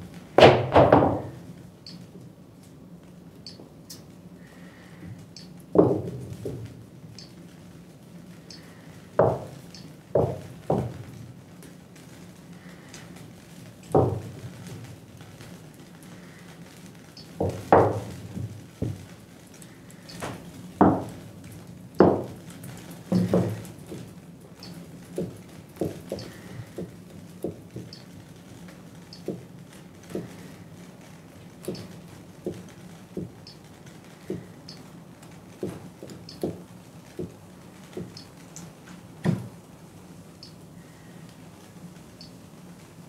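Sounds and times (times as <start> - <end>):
faint steady hum: 0.0 - 43.0
soft knocks and taps: 9.2 - 9.6, 23.1 - 24.0.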